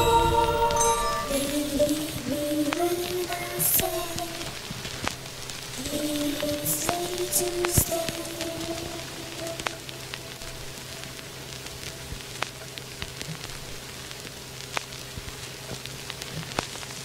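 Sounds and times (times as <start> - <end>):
music note: 0.0 - 4.2
low steady hum: 0.0 - 16.9
soft steady hiss: 0.0 - 17.0
small crackling ticks: 2.7 - 17.0.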